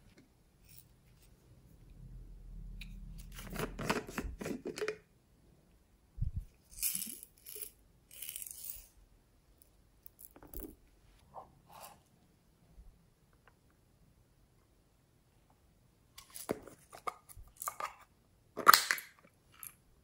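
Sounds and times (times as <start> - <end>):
plastic containers clicking and crackling: 18.6 - 19.7.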